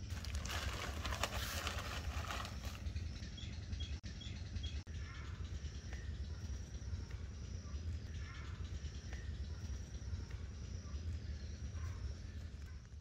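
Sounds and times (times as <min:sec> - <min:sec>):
low steady rumble: 0:00.0 - 0:13.0
insects high steady tone: 0:05.1 - 0:12.8.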